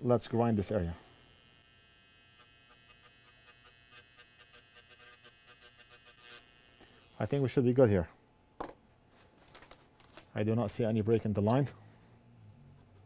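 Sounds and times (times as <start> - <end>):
small motor whine: 1.0 - 7.3.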